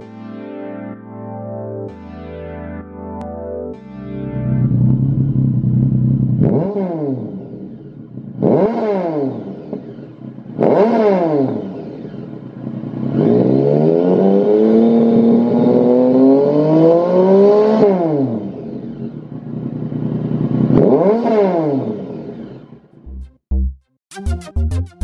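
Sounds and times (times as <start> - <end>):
motorcycle engine revving: 4.3 - 23.0.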